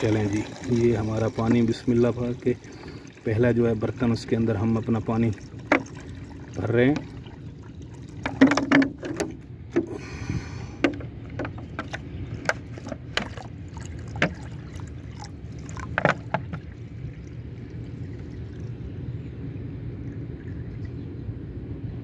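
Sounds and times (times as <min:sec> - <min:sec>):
water pouring onto stones: 0:00.0 - 0:08.7.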